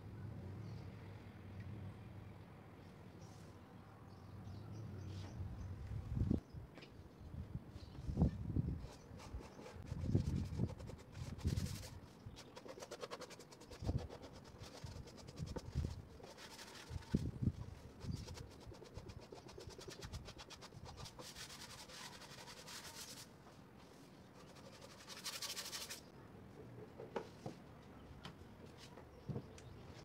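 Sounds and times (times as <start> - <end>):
sanding block rubbing wood: 18.2 - 23.3.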